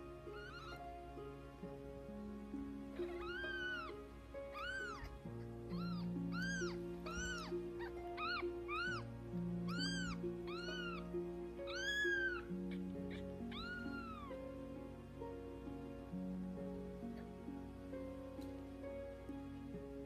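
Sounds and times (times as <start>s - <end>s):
soft background music: 0.0s - 20.0s
kittens mewing: 0.3s - 0.9s, 3.0s - 9.0s, 9.7s - 14.4s.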